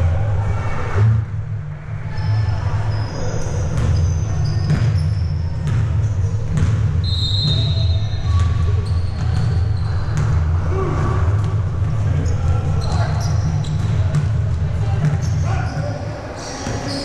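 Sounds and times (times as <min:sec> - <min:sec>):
sneaker squeaks: 0:02.0 - 0:17.0
basketball bouncing on wooden floor: 0:03.8 - 0:10.4, 0:12.8 - 0:14.4.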